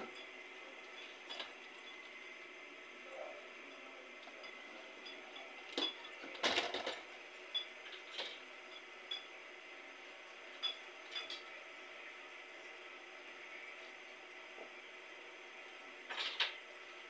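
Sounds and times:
items clattering: 0:05.7 - 0:07.1.

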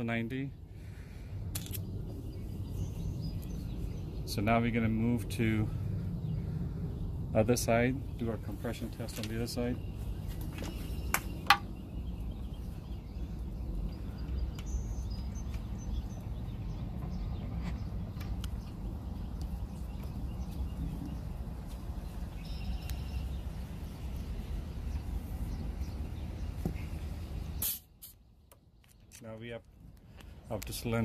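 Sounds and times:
low outdoor rumble: 0:00.0 - 0:31.0
faint bird chirps: 0:22.0 - 0:29.1.

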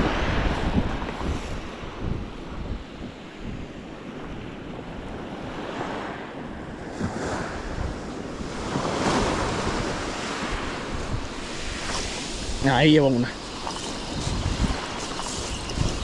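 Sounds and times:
sea surf breaking on rocks: 0:00.0 - 0:02.8, 0:06.8 - 0:16.0
wind buffeting microphone: 0:00.0 - 0:16.0.

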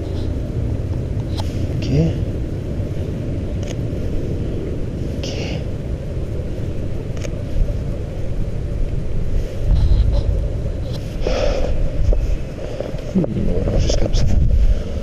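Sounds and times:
distant city noise: 0:00.0 - 0:15.0
wind on microphone: 0:00.0 - 0:15.0.

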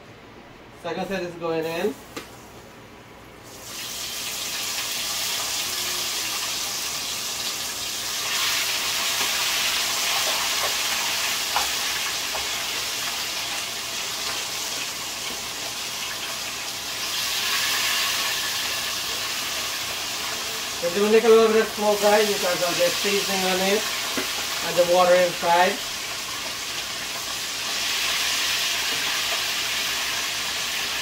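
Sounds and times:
fish sizzling in hot oil: 0:03.4 - 0:31.0.

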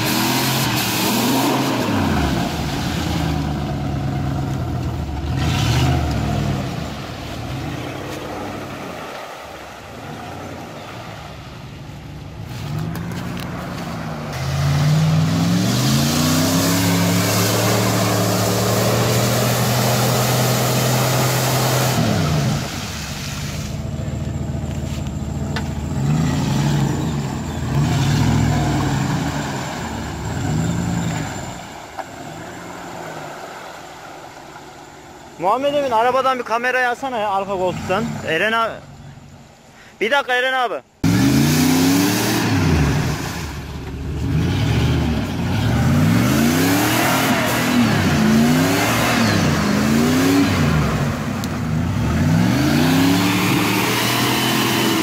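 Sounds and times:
engine revving: 0:00.0 - 0:09.1, 0:12.5 - 0:22.8, 0:23.6 - 0:31.7, 0:41.0 - 0:55.0.

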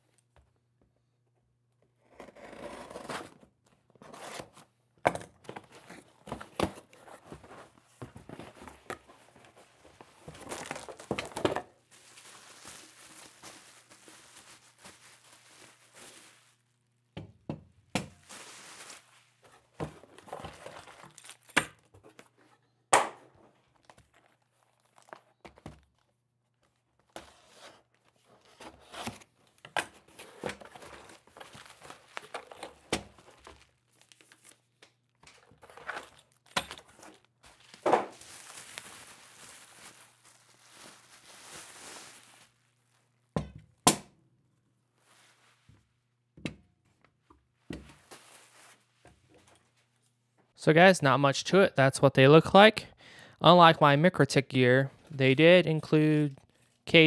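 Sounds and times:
plastic wrapping crinkling: 0:08.5 - 0:16.9, 0:18.2 - 0:21.5, 0:23.7 - 0:27.0, 0:30.7 - 0:35.2, 0:35.8 - 0:43.3.

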